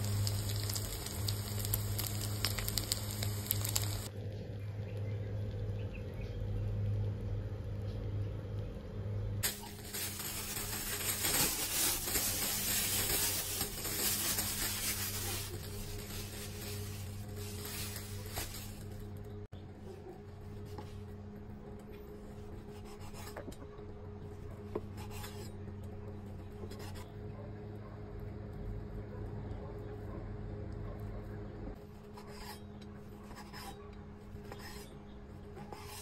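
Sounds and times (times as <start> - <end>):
low electrical hum: 0.0 - 36.0
rubbing and handling tofu skin: 9.4 - 19.2.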